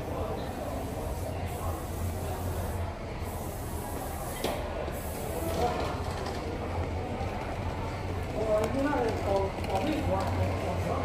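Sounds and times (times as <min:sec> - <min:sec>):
distant voices in a large hall: 0:00.0 - 0:11.0.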